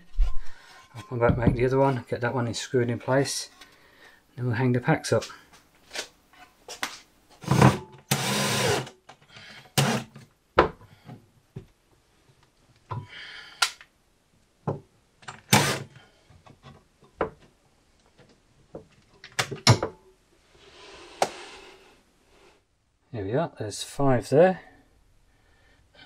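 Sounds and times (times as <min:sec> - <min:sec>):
cordless drill driving screws: 0:08.1 - 0:08.9, 0:09.8 - 0:10.2, 0:15.5 - 0:15.9.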